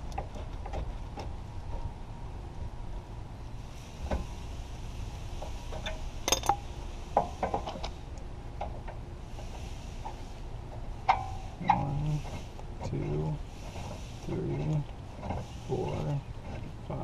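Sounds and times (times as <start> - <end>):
low steady rumble: 0.0 - 17.0
metal tools clinking on concrete: 6.2 - 6.6.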